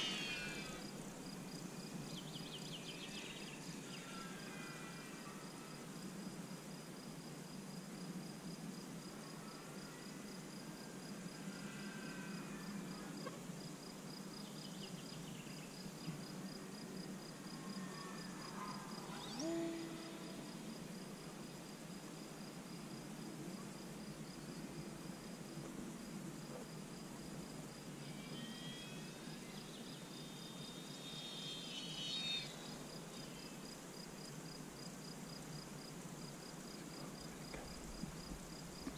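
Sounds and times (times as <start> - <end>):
short gliding calls: 0.0 - 0.9, 19.0 - 20.5, 30.8 - 33.5
insects chirping: 0.0 - 38.9.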